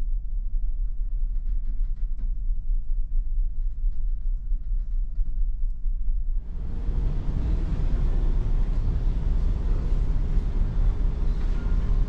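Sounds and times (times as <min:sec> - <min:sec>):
ferry engine rumble: 0:06.4 - 0:12.0.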